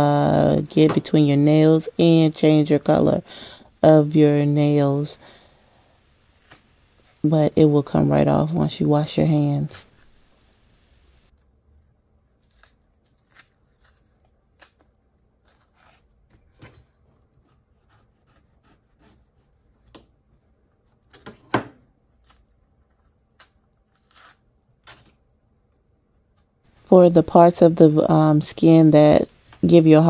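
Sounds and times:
banana skin peeling: 0:05.3 - 0:07.3, 0:12.2 - 0:16.3, 0:22.0 - 0:24.6.

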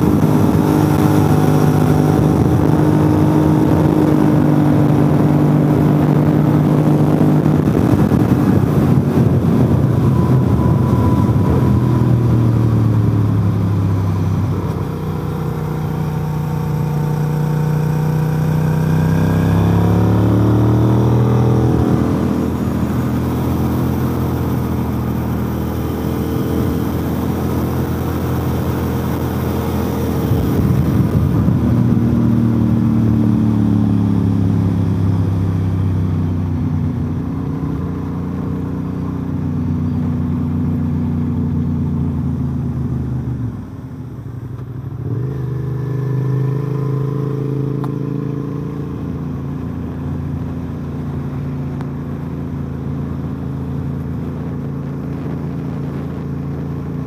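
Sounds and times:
wind rush: 0:00.0 - 0:17.0, 0:18.6 - 0:35.0
motorcycle engine: 0:00.0 - 0:57.0.

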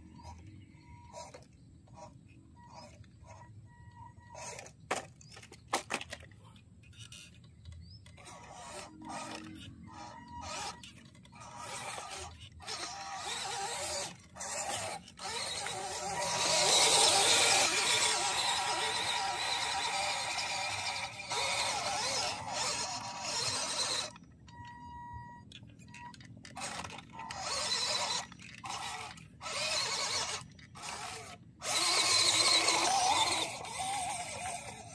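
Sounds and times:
small electric motor and gears whining: 0:00.0 - 0:34.9
toy car tumbling knocks: 0:04.4 - 0:06.5, 0:26.1 - 0:34.8.

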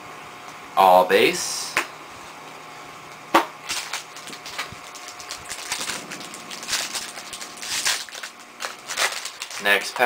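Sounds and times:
trading cards rustling and clicking: 0:03.7 - 0:10.0.

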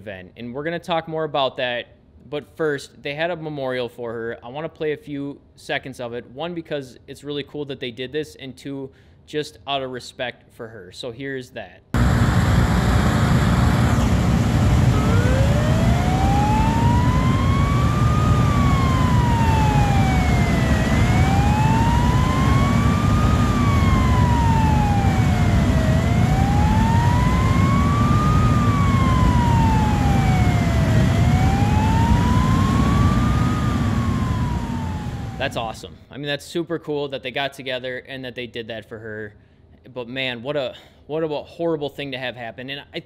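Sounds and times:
low rumble: 0:12.0 - 0:36.0
siren wailing: 0:12.0 - 0:36.0.

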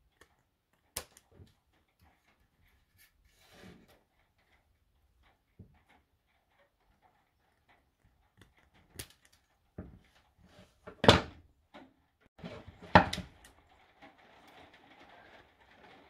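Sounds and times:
scissors snipping metal strip: 0:00.9 - 0:01.3.

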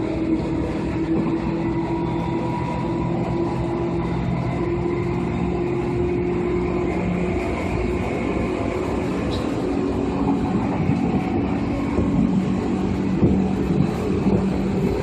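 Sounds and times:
train motor hum: 0:00.0 - 0:15.0
train wheels rumbling: 0:00.0 - 0:15.0.

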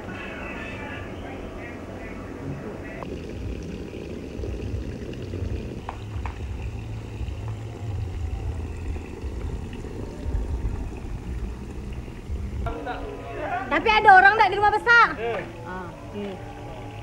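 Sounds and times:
low rumble: 0:02.4 - 0:14.0
water splashing from hose: 0:03.0 - 0:12.7.

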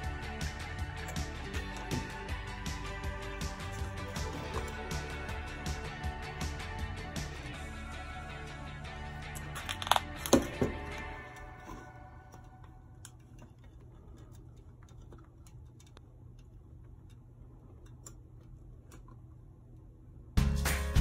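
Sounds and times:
loud music: 0:00.0 - 0:11.4, 0:20.4 - 0:21.0
low steady hum: 0:00.0 - 0:20.4.

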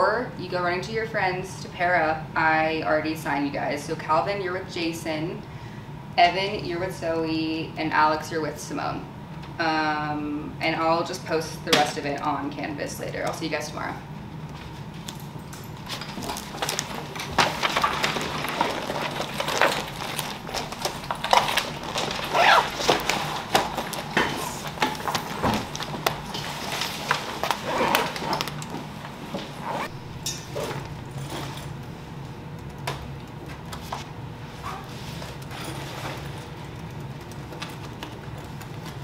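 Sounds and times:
steady low hum: 0:00.0 - 0:39.0
clatter of chairs and bags: 0:14.6 - 0:31.8, 0:33.5 - 0:36.7.

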